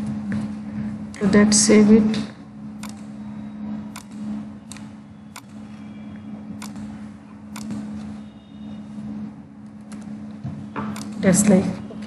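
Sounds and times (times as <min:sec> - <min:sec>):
steady low hum: 0:00.0 - 0:12.0
computer mouse clicking: 0:03.9 - 0:05.6, 0:07.5 - 0:07.8, 0:10.9 - 0:11.2.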